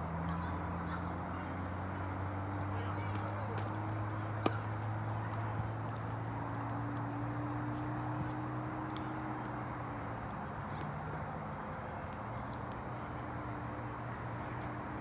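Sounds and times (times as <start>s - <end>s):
tennis ball impacts: 3.0s - 7.0s.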